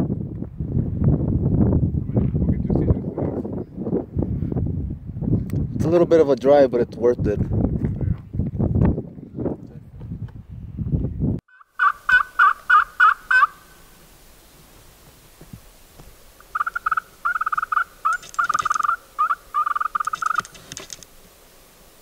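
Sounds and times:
turkey call yelps: 0:11.5 - 0:13.8, 0:16.5 - 0:20.5.

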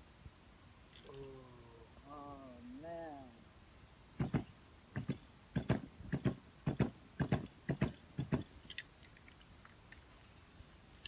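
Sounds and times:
spray paint can shaking: 0:08.7 - 0:11.0.

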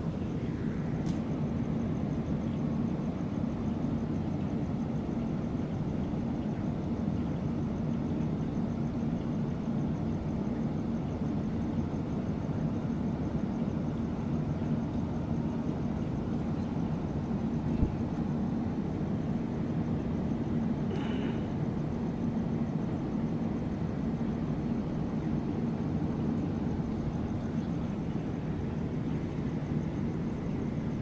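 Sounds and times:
exhaust fan humming: 0:00.0 - 0:07.8, 0:25.4 - 0:31.0.

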